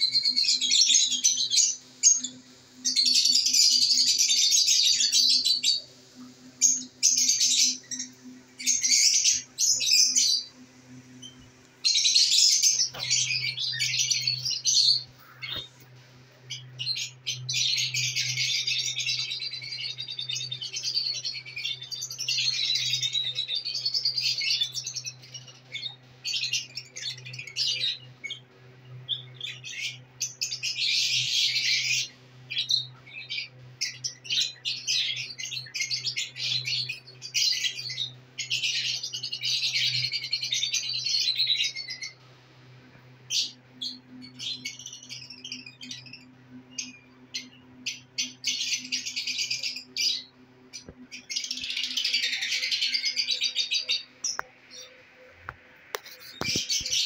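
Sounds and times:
lovebirds chattering: 0.0s - 42.2s, 43.3s - 57.0s.

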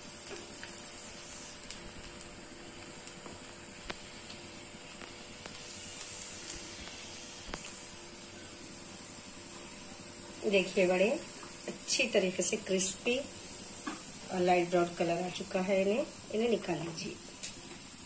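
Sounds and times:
food deep-frying in oil: 0.0s - 18.0s
sharp oil crackles: 0.0s - 18.0s.

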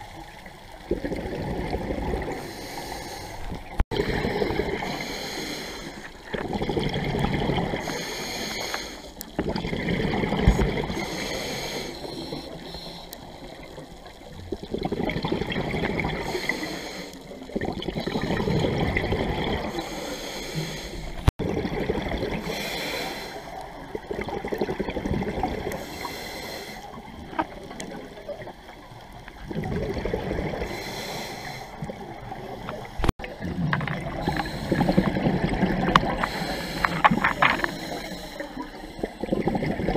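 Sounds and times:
bubbling exhalations underwater: 0.8s - 2.4s, 3.7s - 4.9s, 6.2s - 7.9s, 9.4s - 11.0s, 14.3s - 16.4s, 17.5s - 19.8s, 21.4s - 22.6s, 23.8s - 25.8s, 29.4s - 30.8s, 31.8s - 37.7s, 39.2s - 39.9s
hissing regulator inhalations: 2.3s - 3.6s, 4.3s - 6.3s, 7.8s - 9.4s, 10.4s - 13.5s, 16.2s - 17.4s, 19.6s - 21.3s, 22.4s - 23.6s, 25.7s - 27.0s, 30.6s - 32.9s, 34.1s - 39.3s.

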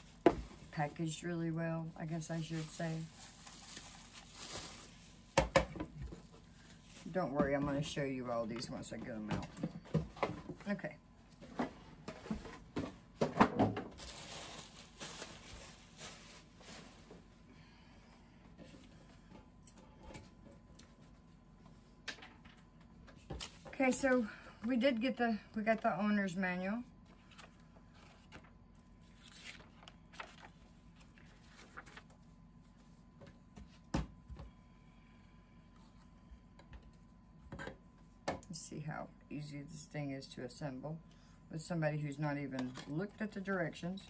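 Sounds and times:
packaging rustling: 2.2s - 5.3s, 14.0s - 17.1s
paper pages rustling: 27.1s - 32.9s.

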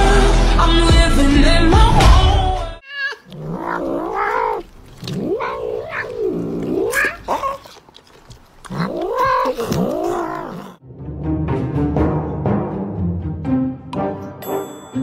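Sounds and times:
cat meowing: 2.8s - 7.7s, 8.7s - 10.8s.

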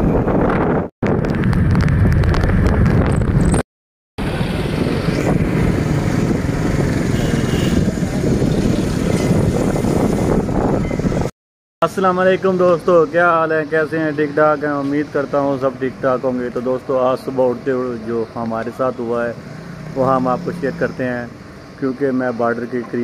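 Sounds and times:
wind rumble on microphone: 0.0s - 3.6s, 4.2s - 11.3s
motorcycles passing: 4.2s - 11.3s, 12.6s - 23.0s
street traffic: 4.2s - 23.0s.

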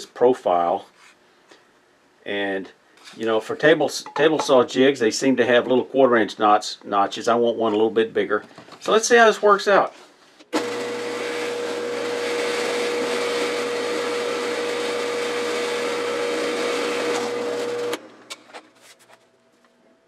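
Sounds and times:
drill cutting plywood: 10.6s - 18.0s
drill press motor whine: 10.6s - 18.1s.

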